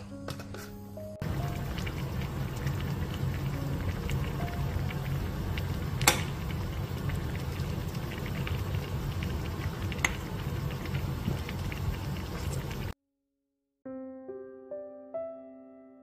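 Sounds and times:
soup bubbling in a pot: 1.2s - 13.0s.

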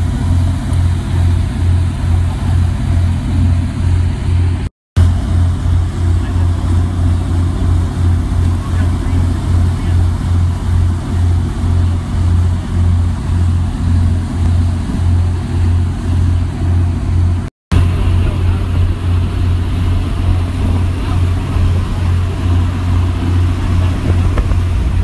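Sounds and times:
boat engine droning: 0.0s - 25.0s.

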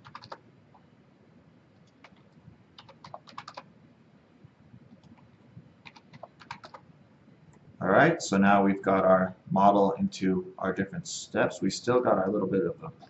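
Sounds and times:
faint keyboard typing: 0.0s - 0.9s, 1.7s - 3.7s, 4.8s - 6.9s.

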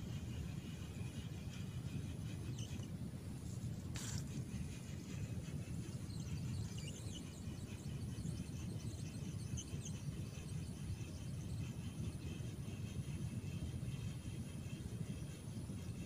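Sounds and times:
faint high chirps and ticks: 0.0s - 16.0s.

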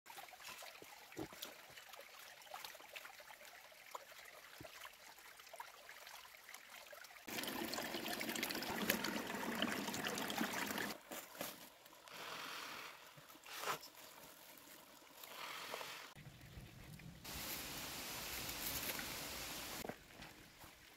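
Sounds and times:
water trickling and flowing: 0.1s - 20.9s.

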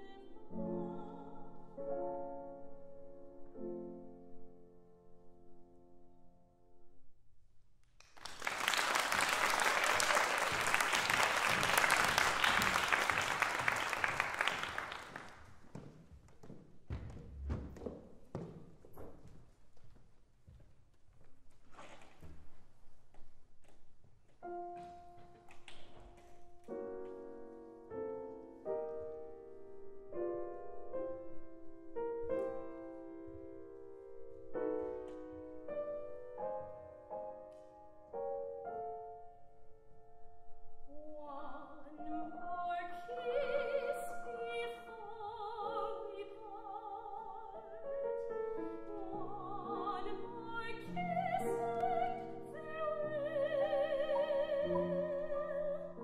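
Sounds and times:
woman singing soprano: 0.0s - 1.8s, 40.9s - 47.8s, 48.8s - 56.0s
grand piano: 0.0s - 7.2s, 8.2s - 56.0s.

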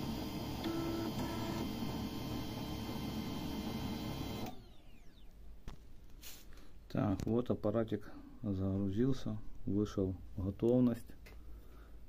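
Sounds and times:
printer mechanical whirr: 0.0s - 5.8s.

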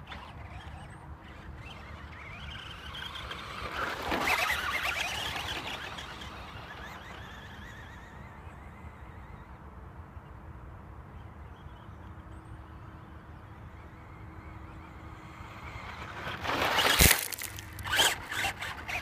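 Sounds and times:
rc truck motor whine: 0.0s - 19.0s
dirt spraying from tyres: 15.9s - 18.8s.

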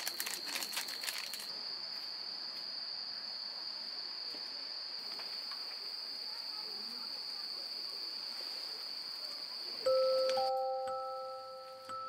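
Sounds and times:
crackly clicks: 0.0s - 1.5s
insects trilling: 0.0s - 12.0s.

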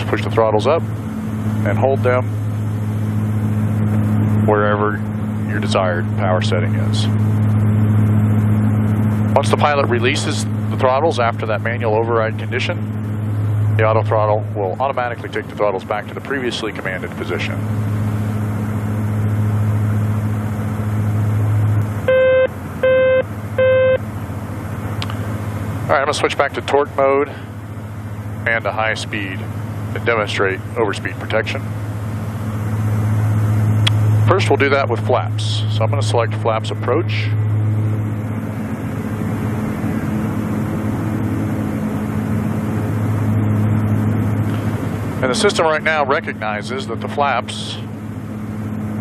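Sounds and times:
propeller engine drone: 0.0s - 49.0s
electronic alert tone beeping: 22.1s - 24.0s.

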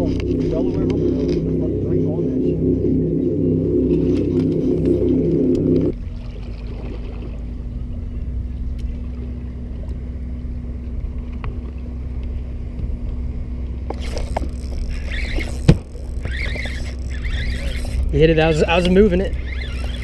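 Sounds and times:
faint steady hum: 0.0s - 20.0s
wind and water rumble: 0.0s - 20.0s
rod and reel handling: 13.9s - 20.0s.

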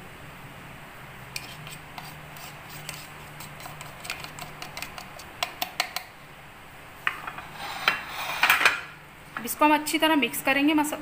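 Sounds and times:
plastic spoon tapping and scraping: 1.4s - 6.1s.

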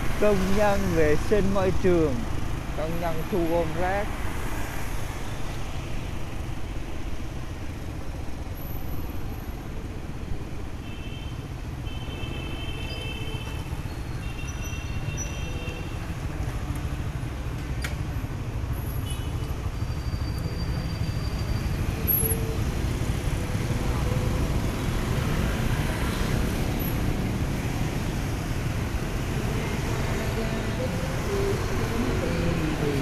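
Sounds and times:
motorbike traffic rumble: 0.0s - 33.0s
scooter engine and road noise: 0.0s - 33.0s.

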